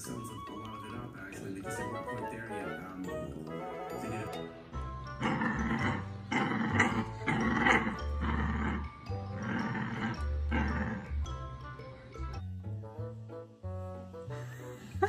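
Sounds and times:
background music: 0.0 - 15.0
puppy growling and barking: 5.1 - 11.3.

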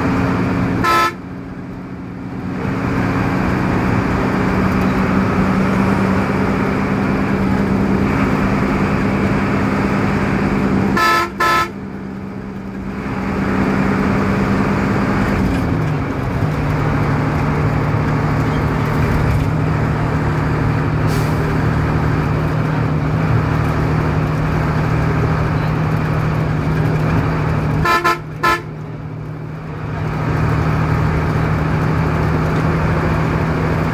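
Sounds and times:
vehicle engine and road drone: 0.0 - 33.9
horn toots: 0.8 - 1.2, 10.9 - 11.8, 27.8 - 28.7.

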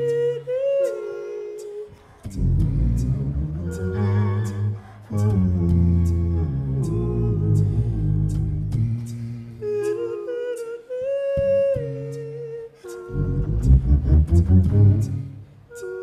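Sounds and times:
mouth-made hi-hat clicks: 0.0 - 13.6, 14.4 - 16.0
wordless sung harmonies: 0.0 - 16.0
hummed bass notes: 2.3 - 9.8, 13.1 - 15.5.

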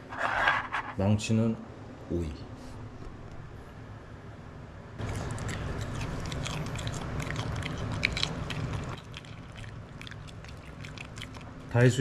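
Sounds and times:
dog crunching cucumber: 5.0 - 11.9.

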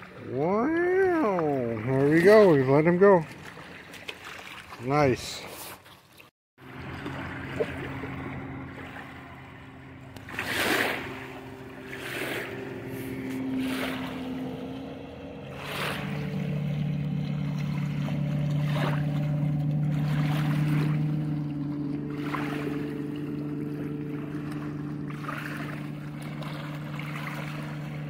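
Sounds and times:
engine humming: 6.6 - 28.0.

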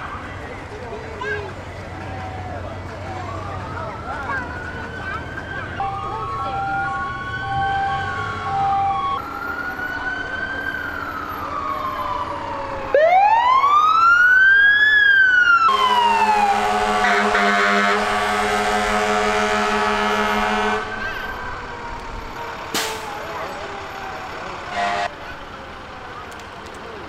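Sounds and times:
fire engine sirens wailing: 0.0 - 27.0
air horn blast: 15.7 - 21.2, 24.7 - 25.1.

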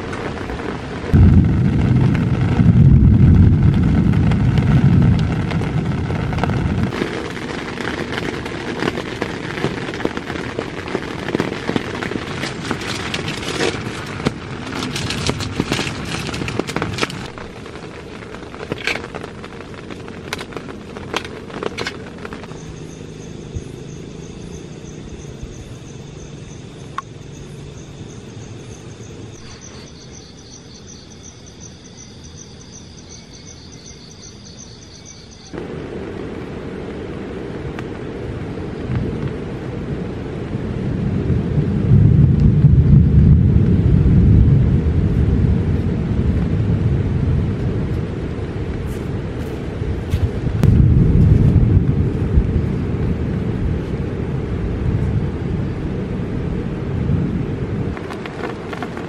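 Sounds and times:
loud rushing noise with crackles: 0.0 - 31.0, 34.5 - 59.0
crickets chirping: 0.3 - 41.7.

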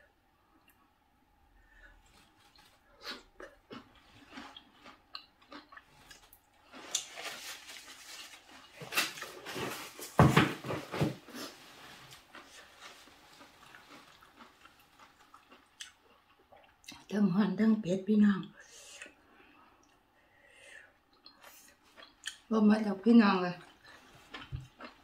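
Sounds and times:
person chewing: 2.0 - 10.0, 11.3 - 17.1, 21.1 - 22.5, 23.6 - 25.0.

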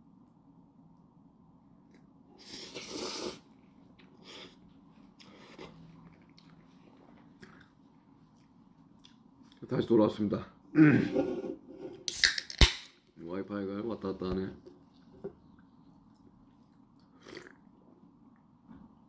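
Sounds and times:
person slurping noodles: 2.4 - 3.5, 17.1 - 17.6
person chewing: 2.5 - 9.6, 15.5 - 17.7.

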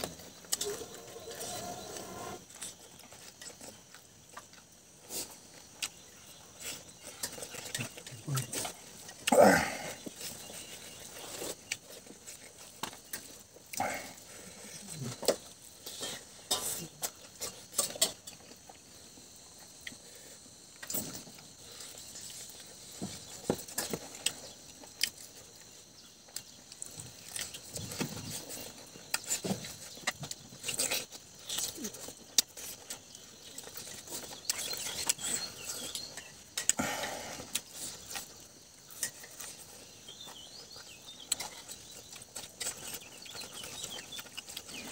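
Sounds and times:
man chewing and lip-smacking: 2.5 - 9.4, 26.3 - 36.8, 40.8 - 44.9.

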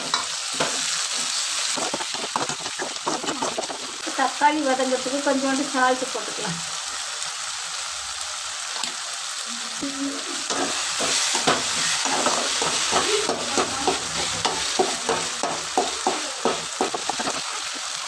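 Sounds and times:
frying sizzle: 0.0 - 18.0
ladle scraping and stirring: 1.7 - 4.0.

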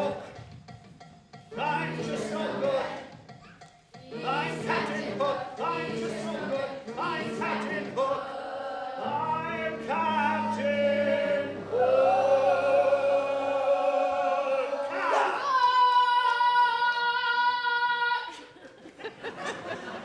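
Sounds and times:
instrumental accompaniment: 0.0 - 14.3
children singing: 1.5 - 3.2, 4.0 - 18.2.

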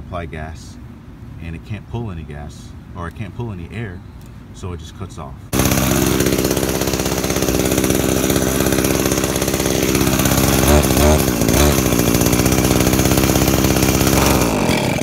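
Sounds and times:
small two-stroke engine running: 5.5 - 15.0.

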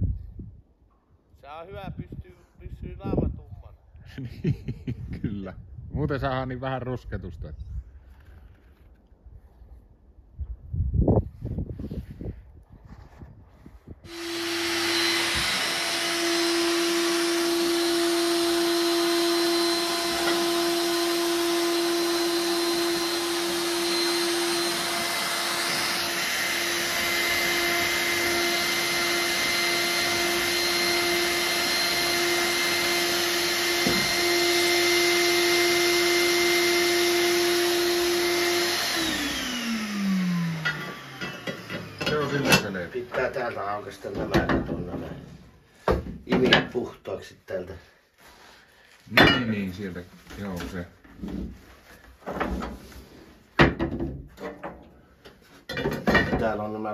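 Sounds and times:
vacuum cleaner whining: 14.1 - 44.2.

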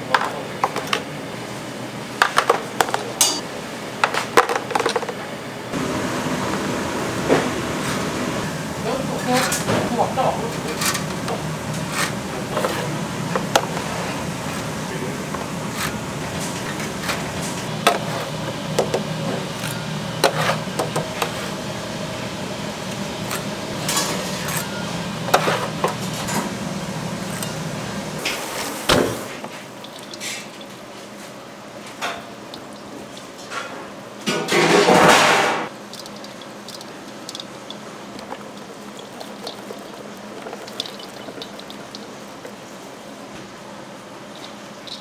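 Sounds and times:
low kitchen hum: 0.0 - 45.0
utensils and dishes clinking: 2.3 - 3.4, 9.2 - 13.9, 23.3 - 26.6, 29.7 - 30.8, 31.8 - 42.6, 44.4 - 45.0.

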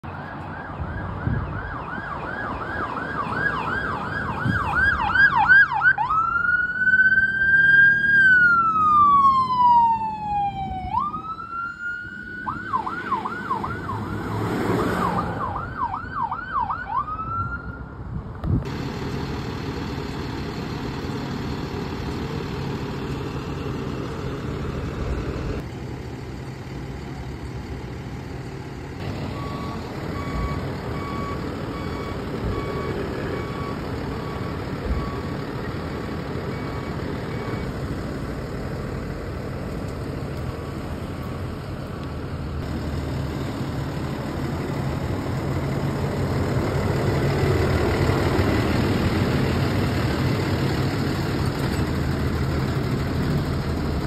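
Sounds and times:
electronic siren yelp and wail: 0.0 - 17.9
engine idling: 18.7 - 54.0.

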